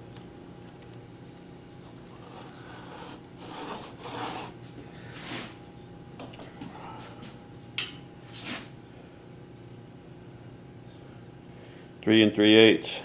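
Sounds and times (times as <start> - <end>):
steady low hum: 0.0 - 13.0
wood-on-wood scraping: 1.8 - 5.6.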